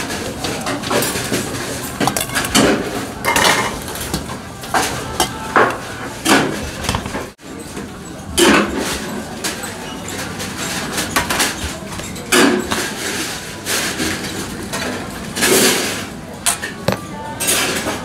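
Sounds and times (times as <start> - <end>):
metal bowls and strainer clanking: 0.5 - 7.1.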